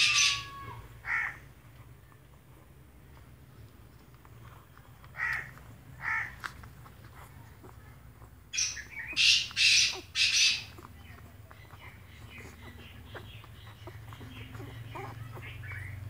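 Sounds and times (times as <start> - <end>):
crows cawing: 0.0 - 1.4, 5.2 - 6.5.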